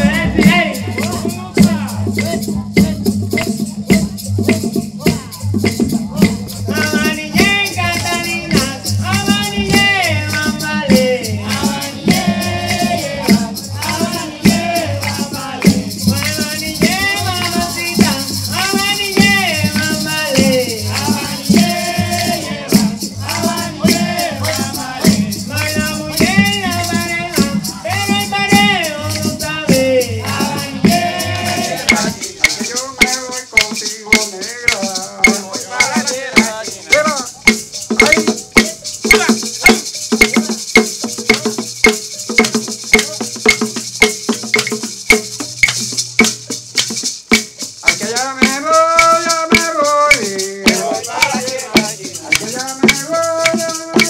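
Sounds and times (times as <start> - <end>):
hand drum strikes: 0.0 - 54.0
maraca shaking: 0.0 - 54.0
person singing melody: 47.8 - 54.0.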